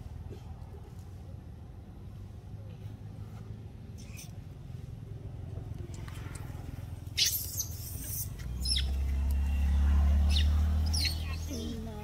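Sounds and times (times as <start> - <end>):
low engine-like rumble: 0.0 - 12.0
sharp high squeak: 7.2 - 9.0, 10.3 - 11.7.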